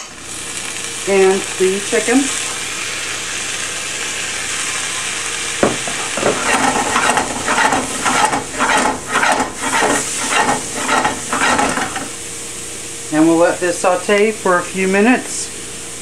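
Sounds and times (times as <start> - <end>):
food sizzling in a skillet: 0.0 - 13.6
knock: 5.6 - 6.4
food stirred around a pan: 5.6 - 12.2.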